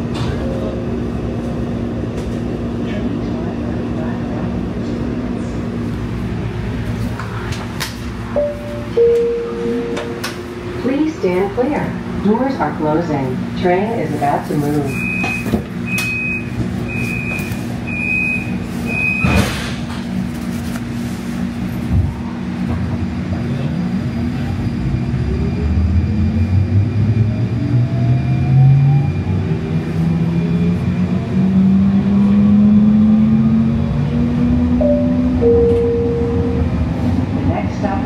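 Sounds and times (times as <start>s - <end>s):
door-closing warning beeps: 8.4s - 10.4s, 14.9s - 19.5s, 34.8s - 36.8s
train doors thumping shut: 19.2s - 20.1s.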